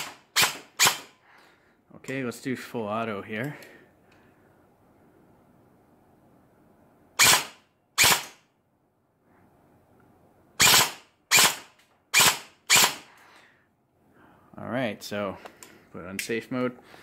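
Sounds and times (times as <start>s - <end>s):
airsoft gun shots: 0.0s - 1.1s, 7.2s - 8.4s, 10.6s - 13.0s.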